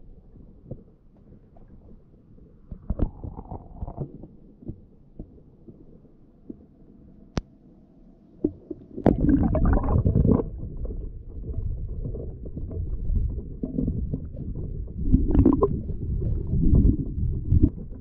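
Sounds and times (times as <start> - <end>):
underwater rushing: 8.4 - 18.0
water slapping against camera: 12.1 - 18.0.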